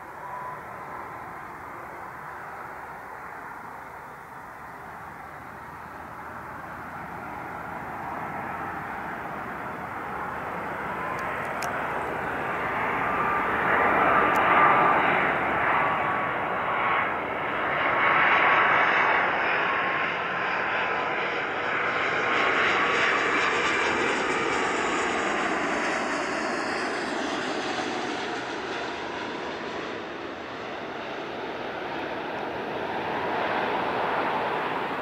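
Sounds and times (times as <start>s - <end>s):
thin high whine: 0.0s - 7.4s
jet airliner roar: 0.0s - 35.0s.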